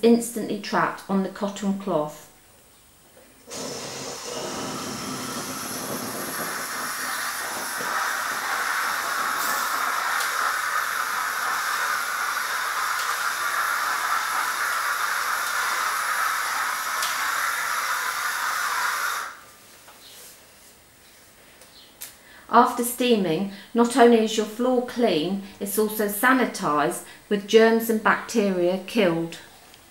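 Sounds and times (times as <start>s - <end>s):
steam cleaner hissing: 3.5s - 19.4s.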